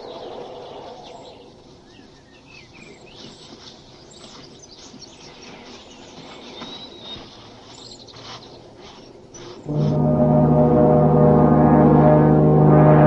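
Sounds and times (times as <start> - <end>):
birds chirping: 0.0 - 10.2
high whistle: 9.7 - 13.0.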